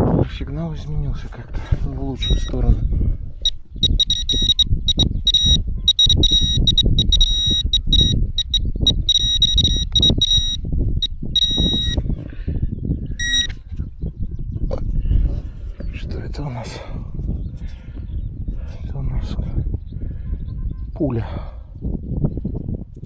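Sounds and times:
metal detector pinpointer beeping: 2.2s - 2.6s, 3.4s - 12.0s, 13.2s - 13.6s.

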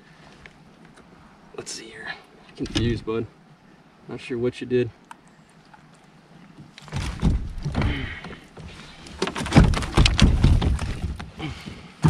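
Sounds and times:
low rumbling handling noise: 2.5s - 3.2s, 6.5s - 12.0s
knocks and thumps on a kayak: 6.6s - 12.0s.

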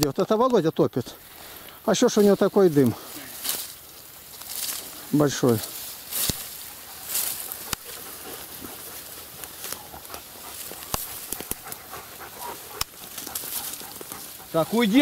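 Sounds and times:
dog panting: 6.6s - 15.0s.

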